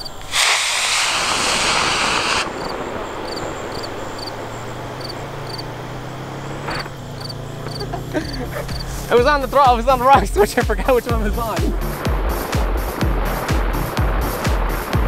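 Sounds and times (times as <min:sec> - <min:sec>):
rocket motor hissing: 0:00.0 - 0:05.6
faint insect chirps: 0:00.0 - 0:09.2.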